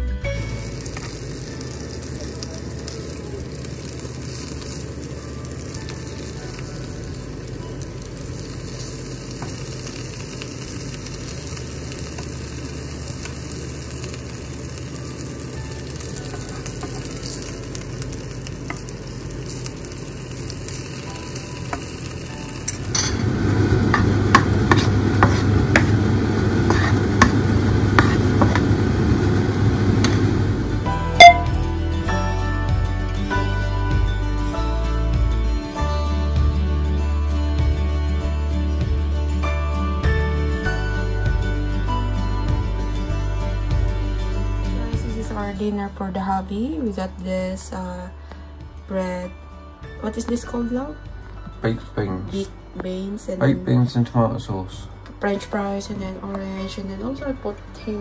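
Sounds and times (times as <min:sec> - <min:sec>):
meat sizzling in a frying pan: 0:00.3 - 0:30.0
spatula scraping and tapping pan: 0:23.9 - 0:26.0, 0:26.6 - 0:28.7.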